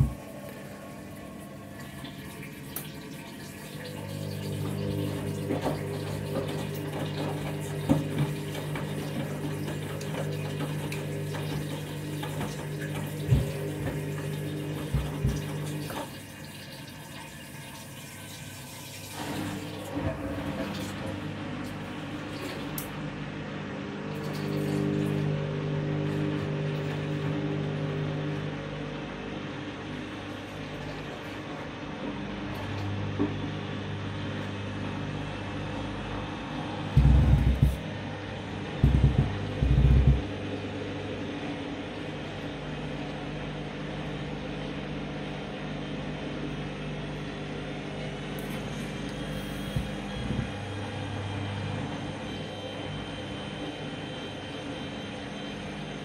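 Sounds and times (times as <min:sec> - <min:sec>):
washing machine drum knock: 0:00.0 - 0:00.5, 0:04.5 - 0:16.1, 0:36.9 - 0:37.8, 0:38.7 - 0:40.5
washing machine motor hum: 0:00.0 - 0:56.0
dull thuds in drum: 0:38.8 - 0:40.3.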